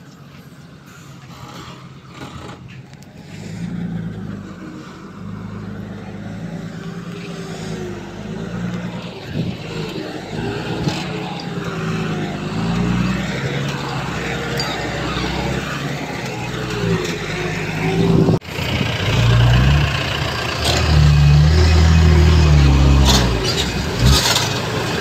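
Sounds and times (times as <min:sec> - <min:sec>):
heavy diesel machinery running: 0:00.3 - 0:25.0
wavering whine: 0:04.3 - 0:18.4.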